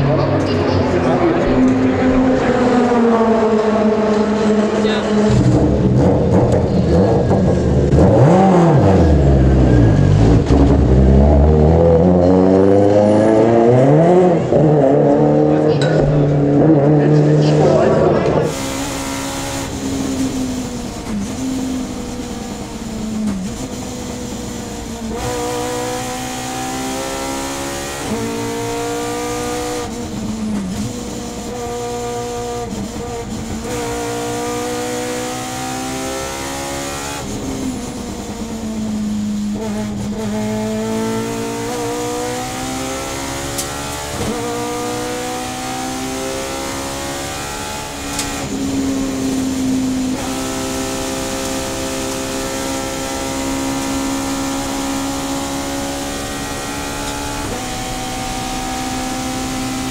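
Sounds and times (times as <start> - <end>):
race car engine accelerating: 0.0 - 59.9.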